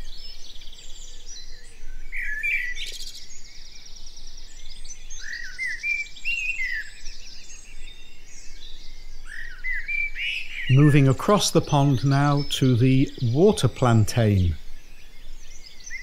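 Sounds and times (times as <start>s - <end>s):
songbirds singing: 0.0s - 16.0s.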